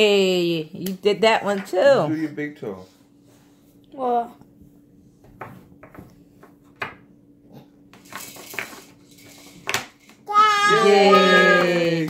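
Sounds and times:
person cheering: 10.3s - 12.0s.

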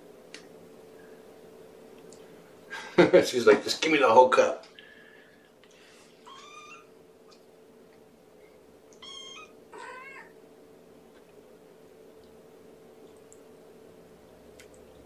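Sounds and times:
kitten meowing: 6.3s - 6.9s, 8.9s - 10.4s.

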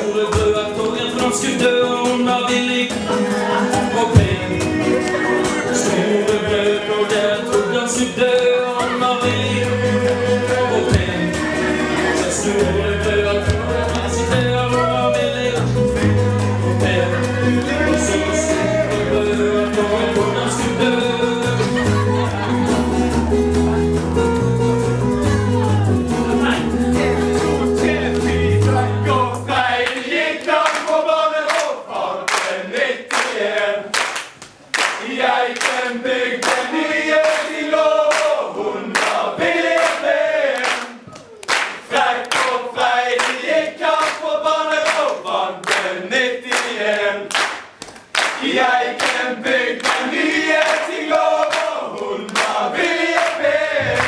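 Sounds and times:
men singing in chorus: 0.0s - 22.8s, 26.9s - 33.9s, 35.0s - 41.0s, 41.9s - 47.3s, 48.4s - 54.0s
guitar: 0.0s - 29.9s, 53.6s - 54.0s
bass guitar: 3.0s - 7.7s, 8.8s - 29.8s, 53.6s - 54.0s
sharp claps: 29.8s - 38.4s, 39.0s - 39.2s, 39.8s - 45.9s, 46.5s - 54.0s.

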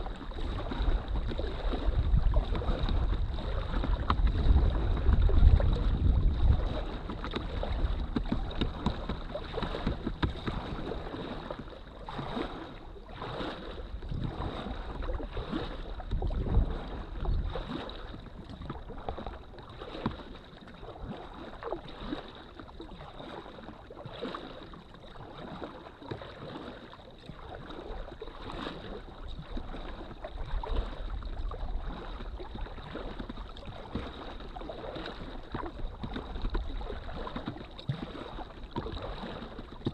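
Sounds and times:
wind buffeting microphone: 0.0s - 12.6s, 13.4s - 19.5s
paddle strokes splashing: 0.0s - 39.9s
water lapping against hull: 0.0s - 39.9s.

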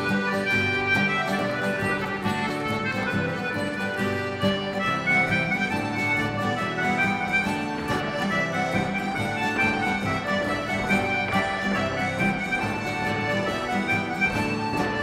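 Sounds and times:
folk dance tune with steady beat: 0.0s - 15.0s.

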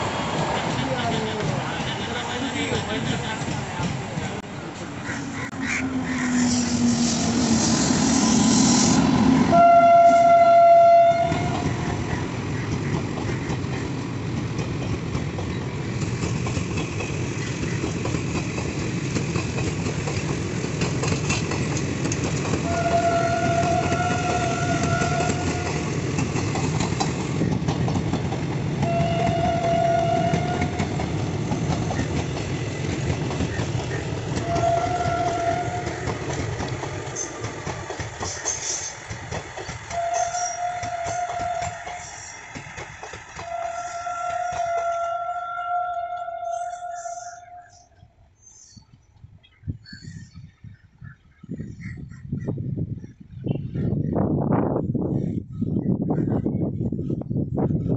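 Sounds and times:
locomotive rushing past: 0.0s - 47.2s
train wheels rumbling on rails: 0.0s - 47.9s
train horn: 5.6s - 11.8s, 22.6s - 26.0s, 28.8s - 31.1s, 34.4s - 36.1s, 39.9s - 42.3s, 43.4s - 47.9s.

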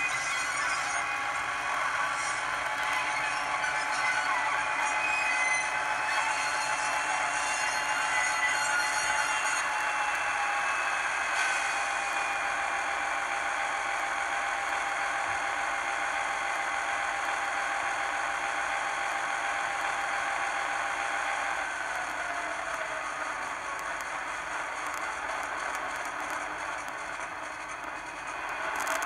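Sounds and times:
model diesel engine sound: 8.8s - 29.0s.

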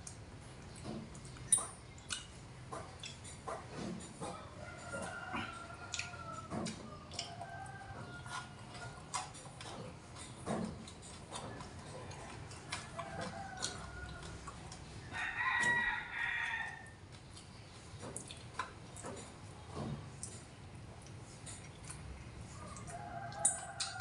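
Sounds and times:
rooster crowing: 4.3s - 9.0s, 12.1s - 17.0s, 22.9s - 24.0s.

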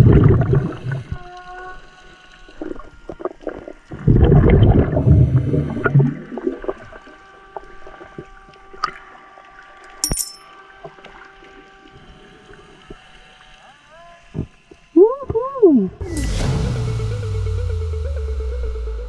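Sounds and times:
churning water and bubbles: 0.0s - 1.2s, 2.5s - 9.4s
faint steady underwater hum: 0.0s - 19.0s.

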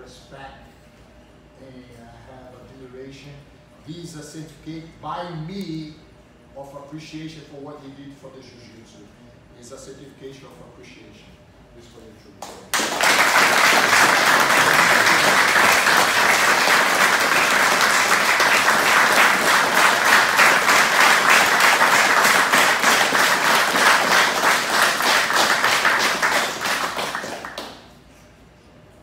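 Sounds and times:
group applause: 12.7s - 28.0s.

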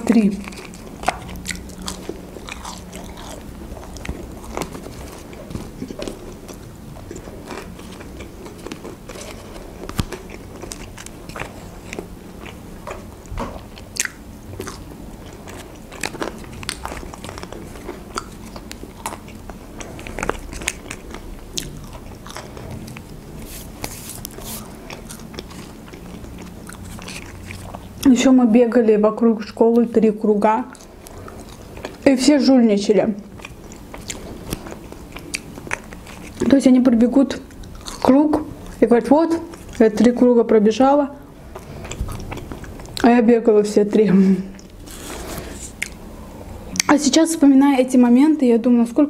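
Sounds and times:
person chewing french fries: 0.0s - 28.2s, 30.6s - 32.2s, 33.2s - 40.2s, 41.2s - 43.1s, 44.5s - 46.9s.

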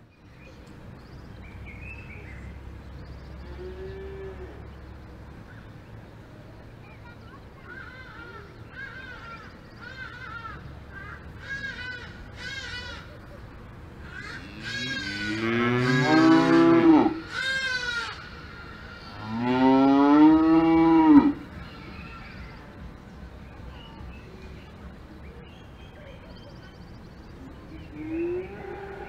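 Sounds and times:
cows mooing: 14.3s - 18.1s, 19.0s - 21.4s.

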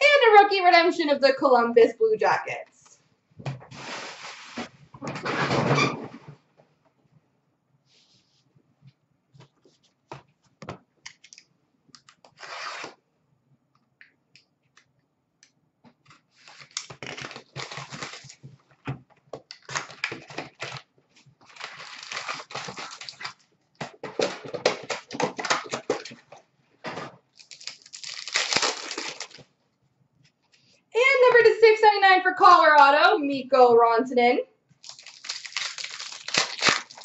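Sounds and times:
cards clicking and crackling: 11.1s - 12.6s, 27.4s - 29.5s, 34.8s - 37.0s
card packs tearing open: 12.0s - 13.0s, 16.4s - 18.4s, 19.5s - 23.4s, 24.0s - 26.2s, 27.3s - 29.4s, 34.8s - 37.0s
wrappers crinkling and rustling: 16.3s - 18.6s, 19.5s - 26.4s, 27.3s - 29.5s, 34.8s - 37.0s.

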